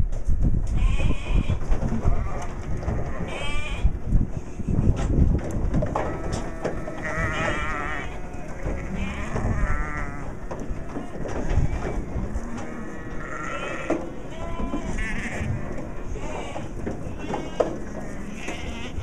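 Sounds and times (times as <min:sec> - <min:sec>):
sheep bleating: 0:06.1 - 0:19.0.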